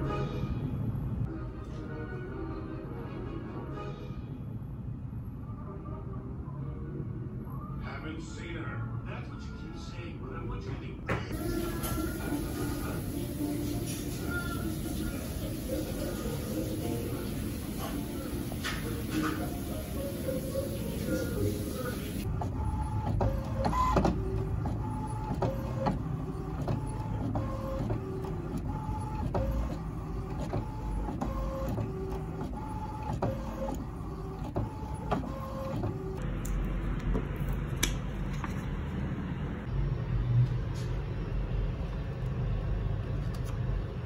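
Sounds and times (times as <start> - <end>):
printer carriage whirring: 11.2 - 39.7
printer low hum: 11.3 - 44.0.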